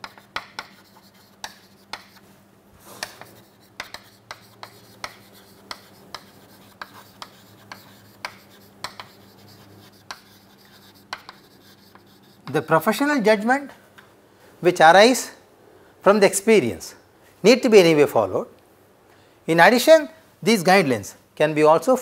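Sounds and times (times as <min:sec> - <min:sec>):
chalk tapping and scraping on board: 0:00.0 - 0:02.3, 0:02.9 - 0:12.7.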